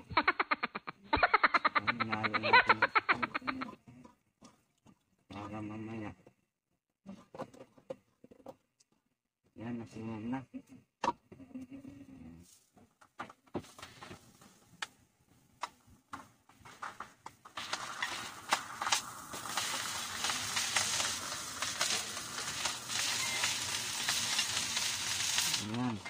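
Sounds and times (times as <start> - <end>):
rice sizzling in hot oil: 17.6 - 26.0.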